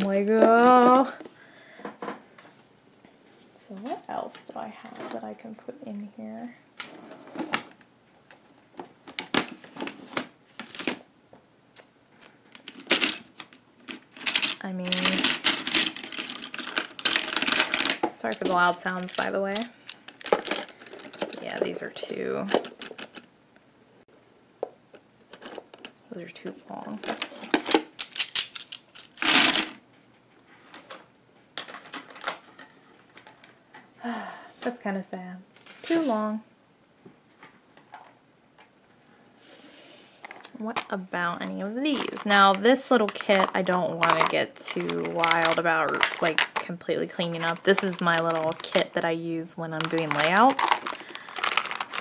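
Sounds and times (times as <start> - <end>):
plastic pens clicking and clattering: 12.6 - 21.7, 41.8 - 49.0, 49.8 - 52.0.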